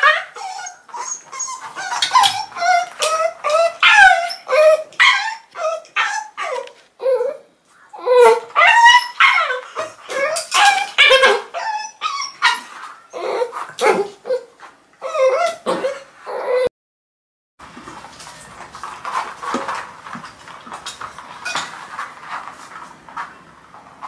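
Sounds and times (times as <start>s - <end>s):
puppies yipping and whimpering: 0.0s - 16.7s.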